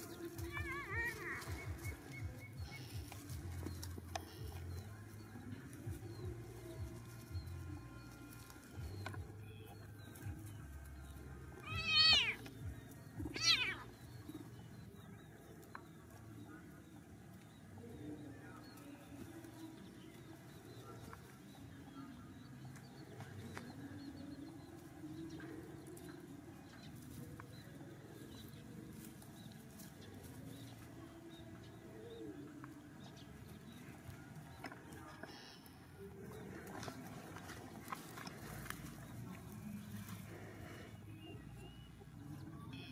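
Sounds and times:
high wavering animal cries: 11.6s - 12.4s, 13.3s - 13.9s.

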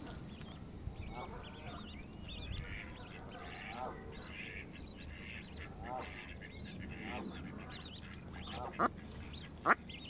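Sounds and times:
ducklings peeping: 0.0s - 10.0s
geese honking: 2.6s - 9.8s.

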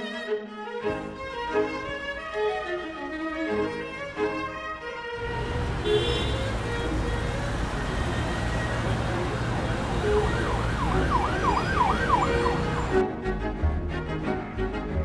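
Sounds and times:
music: 0.0s - 15.0s
street traffic noise: 5.2s - 13.0s
siren yelping: 6.6s - 13.0s.

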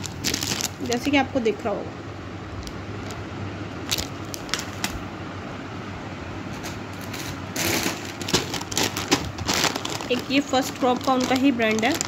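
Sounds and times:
plastic packaging crinkling: 0.0s - 1.3s, 3.8s - 5.0s, 6.6s - 12.0s
steady background hum: 0.0s - 12.0s.

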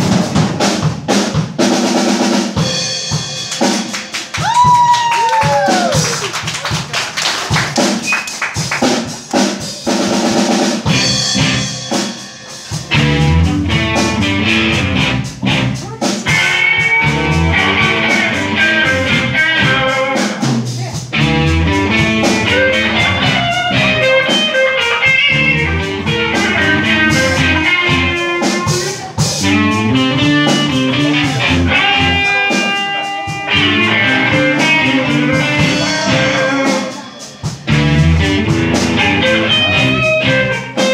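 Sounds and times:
drum kit: 0.0s - 40.9s
electric bass: 10.9s - 11.9s, 12.7s - 40.9s
electric guitars: 10.9s - 40.9s.

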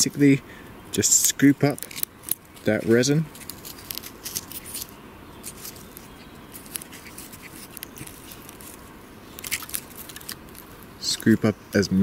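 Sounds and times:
wood scraping resin off trunk: 1.7s - 10.9s.

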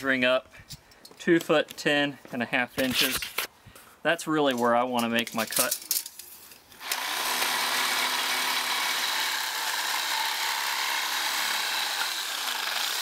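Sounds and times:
reciprocating saw cutting metal: 6.8s - 13.0s.

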